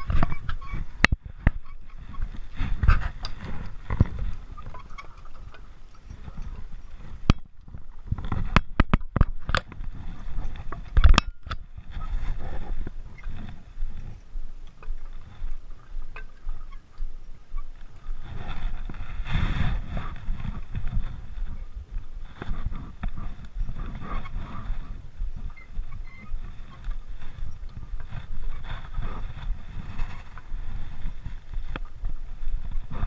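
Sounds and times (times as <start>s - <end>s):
low uneven rumble: 9.4s - 33.0s.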